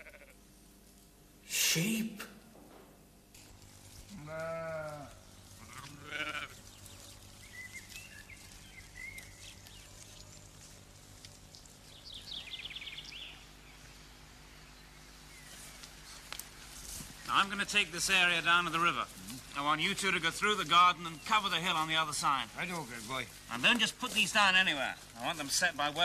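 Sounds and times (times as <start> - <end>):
sheep bleating: 0.0 - 0.4, 4.1 - 6.6.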